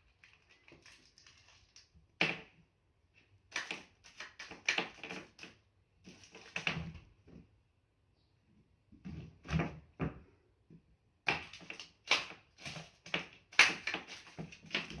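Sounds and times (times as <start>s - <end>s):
candy clattering on wooden floor: 0.0s - 2.4s.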